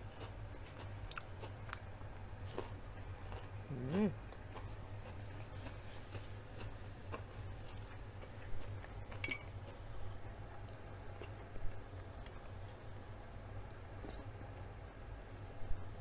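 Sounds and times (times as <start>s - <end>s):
low steady hum: 0.0s - 16.0s
spoon clinking on glass bowl: 9.2s - 9.5s.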